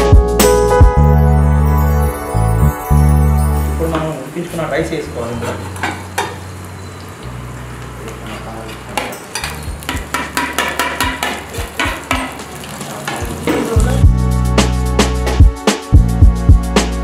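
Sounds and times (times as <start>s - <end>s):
rice sizzling in hot oil: 9.2s - 14.0s.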